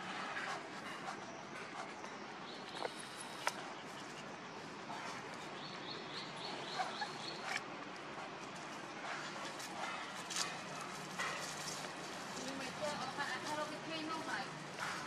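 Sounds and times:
outdoor background hiss: 0.0 - 15.0
faint high chirping calls: 1.2 - 7.6.

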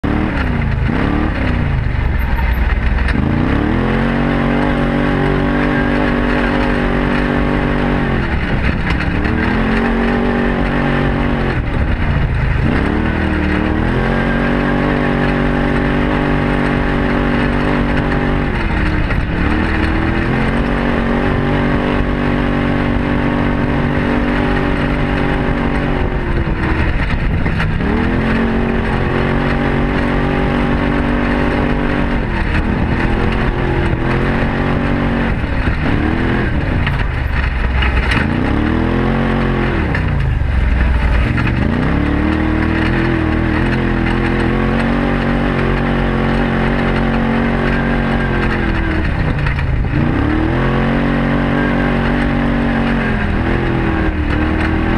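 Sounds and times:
vehicle engine running: 0.0 - 54.9.

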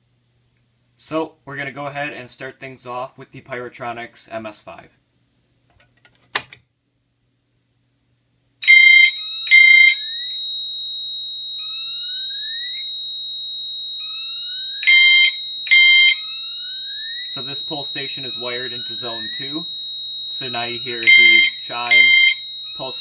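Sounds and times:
steady high-pitched tone: 8.6 - 23.0
alarm horn chime strokes: 13.9 - 23.0.

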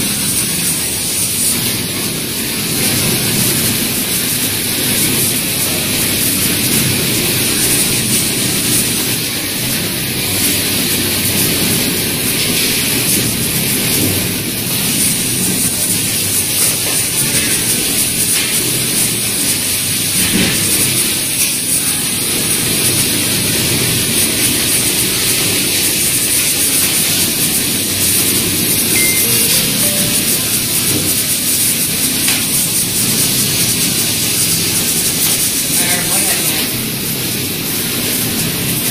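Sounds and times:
thin high whine: 29.0 - 31.2.

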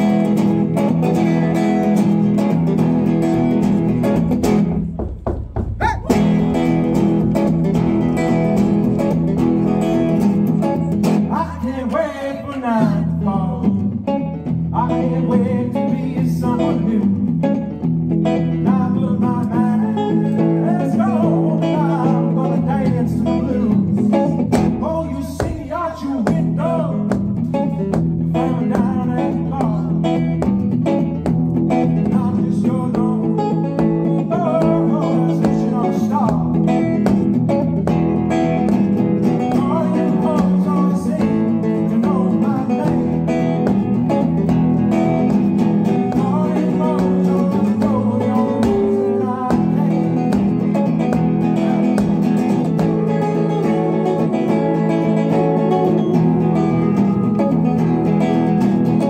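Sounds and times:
live band music: 0.0 - 11.3, 33.8 - 59.0
person singing: 5.7 - 30.5, 31.2 - 59.0.

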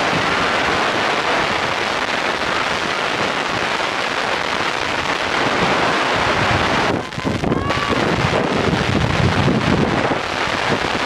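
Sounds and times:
wind buffeting microphone: 4.4 - 11.0.

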